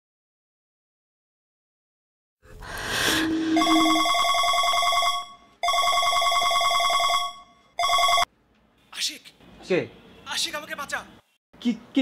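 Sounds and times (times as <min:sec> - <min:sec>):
phone ringtone trilling: 0:03.1 - 0:08.3.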